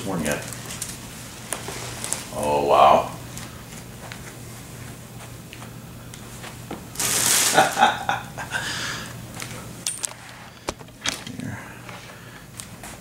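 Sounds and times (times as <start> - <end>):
low steady hum: 0.0 - 13.0
plastic wrapping crinkling: 0.2 - 2.5, 6.9 - 8.1.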